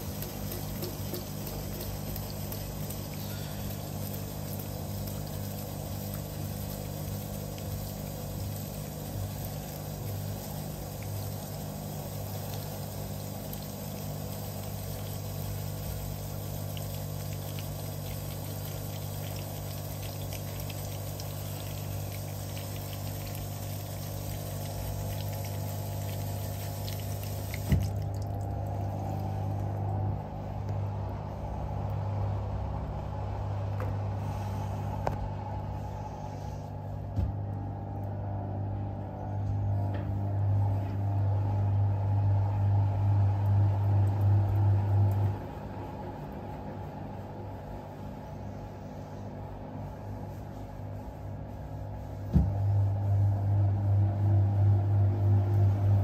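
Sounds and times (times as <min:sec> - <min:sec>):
water trickling in: 0:00.0 - 0:30.5
washing machine motor and drum: 0:00.0 - 0:56.0.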